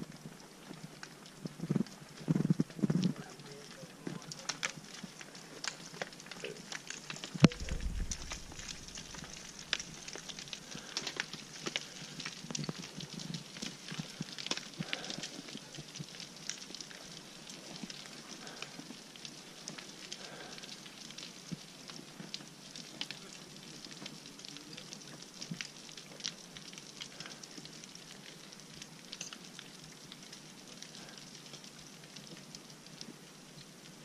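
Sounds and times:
steady hiss: 0.0 - 34.0
rocks clattering down scree: 1.4 - 28.3.

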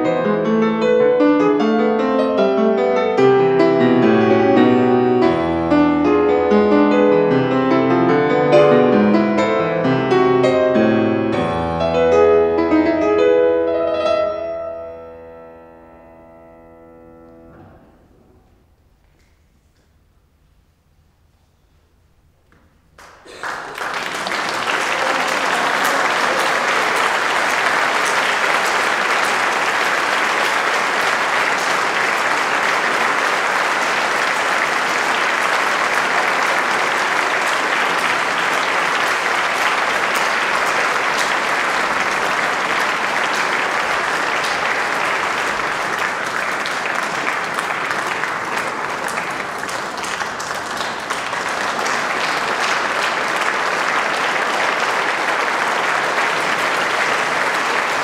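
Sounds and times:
audience clapping: 22.9 - 58.0.

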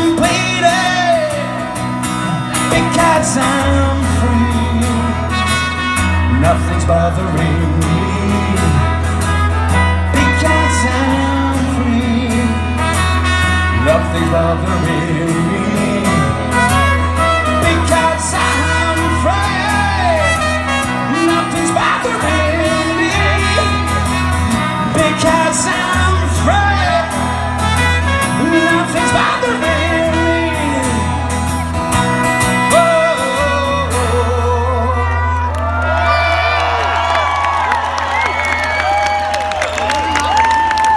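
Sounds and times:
strummed acoustic guitar: 0.0 - 34.9
trumpet playing melody: 2.6 - 34.9.

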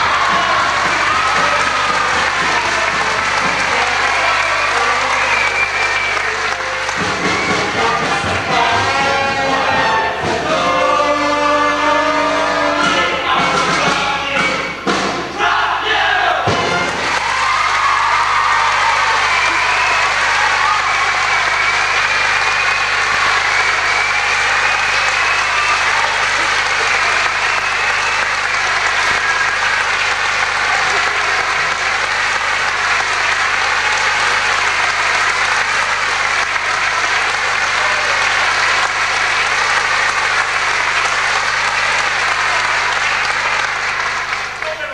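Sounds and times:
audience applauding: 0.0 - 13.0, 16.6 - 44.9.

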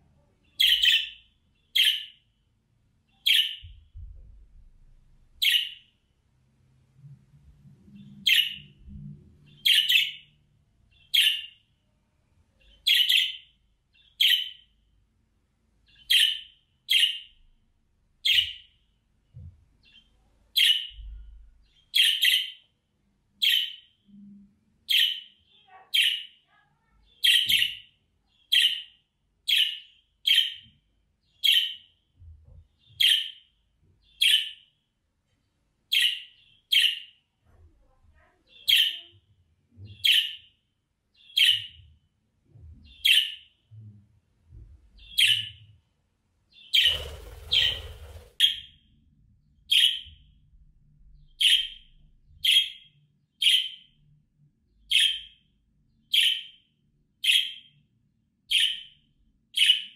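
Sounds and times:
budgerigar chirping: 0.6 - 2.2, 3.2 - 3.7, 5.4 - 5.9, 8.2 - 8.6, 9.5 - 10.3, 10.9 - 11.6, 12.8 - 13.4, 14.2 - 14.6, 15.9 - 17.3, 21.9 - 22.6, 28.5 - 28.9, 49.7 - 50.1, 56.1 - 56.6, 58.5 - 58.9, 59.6 - 59.9.

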